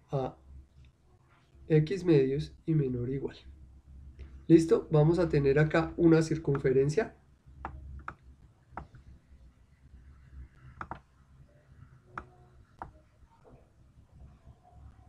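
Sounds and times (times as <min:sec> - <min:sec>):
low steady hum: 0:00.0 - 0:15.0
computer input clicks: 0:10.8 - 0:11.0.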